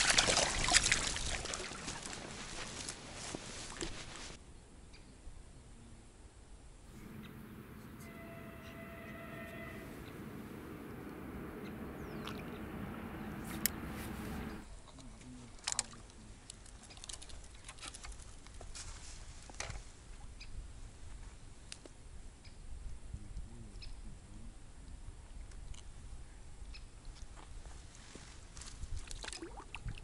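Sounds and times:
rushing outdoor noise: 0:06.9 - 0:14.6
fishing tackle clicks and rustles: 0:14.8 - 0:18.6.

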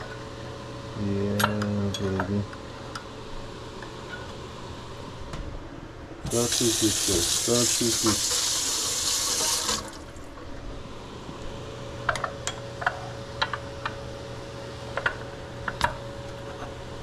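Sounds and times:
steady low hum: 0:00.0 - 0:09.1, 0:09.8 - 0:17.0
kitchen tap running: 0:06.2 - 0:10.1.

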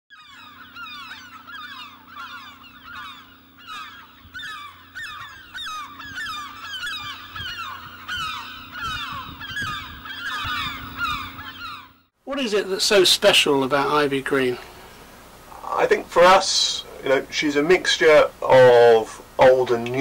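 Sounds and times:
flock of birds calling: 0:00.1 - 0:12.2, 0:13.8 - 0:20.0.

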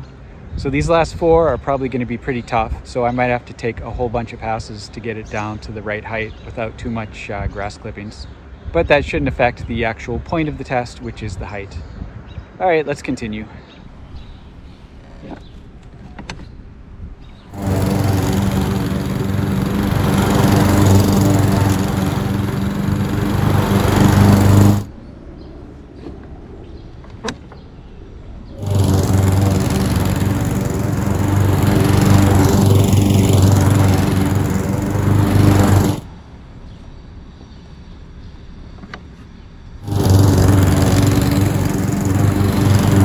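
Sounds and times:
lawn mower engine cutting grass: 0:17.5 - 0:24.9, 0:28.6 - 0:36.1, 0:39.8 - 0:43.0.

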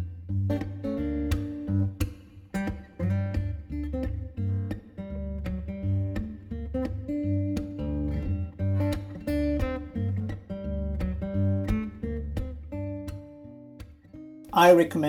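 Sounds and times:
song with strummed acoustic guitar: 0:00.0 - 0:15.0.

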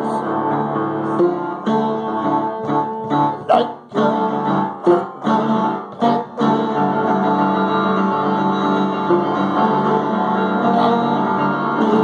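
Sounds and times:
plucked guitar music: 0:00.0 - 0:12.0.

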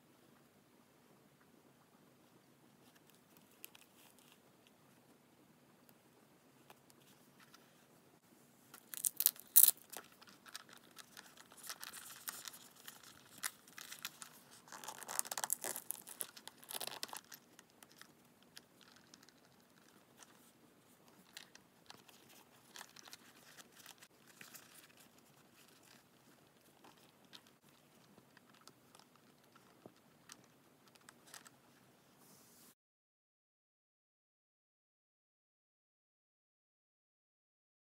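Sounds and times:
rustling and crinkling: 0:02.7 - 0:05.2, 0:06.6 - 0:32.8.

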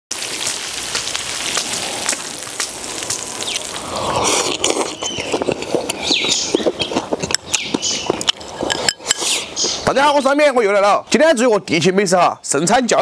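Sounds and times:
chewing: 0:00.5 - 0:09.8.

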